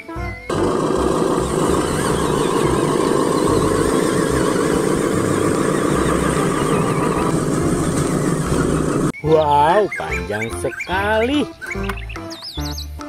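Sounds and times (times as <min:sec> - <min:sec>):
model truck motor running: 0:00.5 - 0:09.1.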